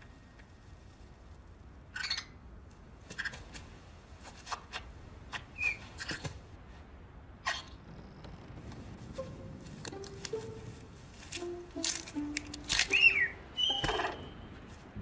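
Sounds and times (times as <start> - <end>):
high chirp: 12.8 - 14.6.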